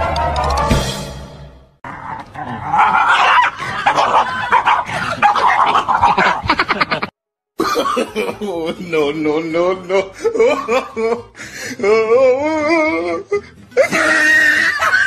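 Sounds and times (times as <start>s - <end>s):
dog barking and yipping: 2.7s - 6.6s.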